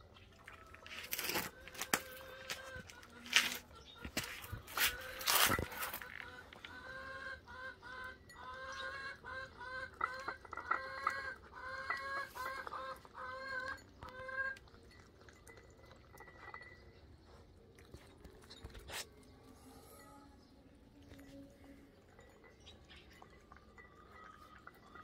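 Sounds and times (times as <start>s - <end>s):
chicken clucking: 0.6s - 14.6s.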